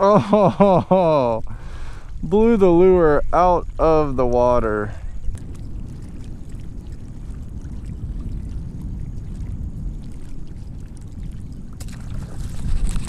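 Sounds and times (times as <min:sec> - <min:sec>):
water lapping against boat hull: 0:04.0 - 0:13.0.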